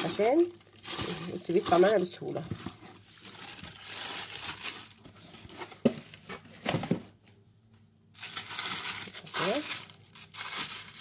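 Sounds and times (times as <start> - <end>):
plastic bag crinkling: 0.0 - 5.4, 8.1 - 11.0.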